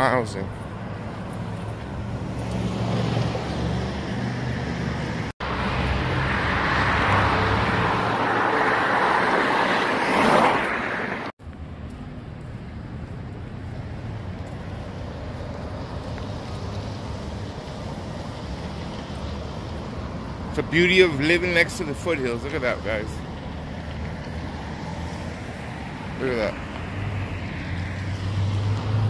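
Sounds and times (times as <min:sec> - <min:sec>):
hum of passing cars: 0:00.0 - 0:29.0.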